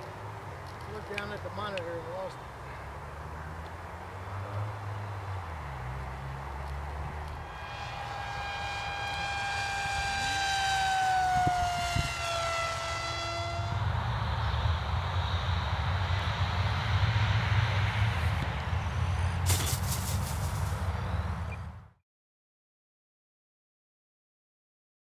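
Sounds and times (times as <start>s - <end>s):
model plane motor whining: 7.2s - 14.0s
rushing hiss: 19.4s - 20.8s.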